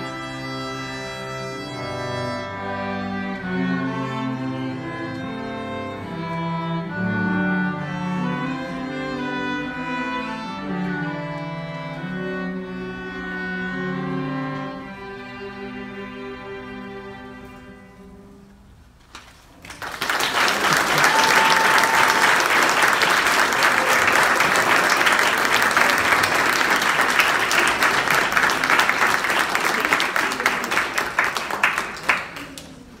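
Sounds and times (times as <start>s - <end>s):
string ensemble chord: 0.0s - 18.6s
audience applause: 19.5s - 33.0s.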